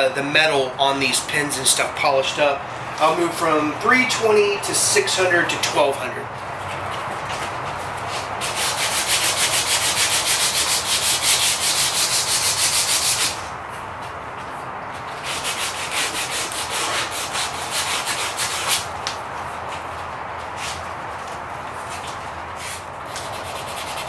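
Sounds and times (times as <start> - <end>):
sandpaper rasping on wood: 8.1 - 13.4, 15.2 - 18.9, 22.6 - 24.0.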